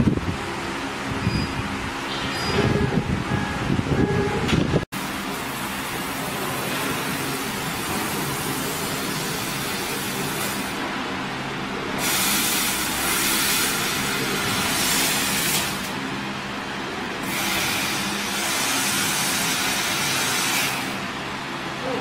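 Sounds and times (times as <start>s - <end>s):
laser cutter nozzle hissing: 12.0s - 15.9s, 17.2s - 21.0s.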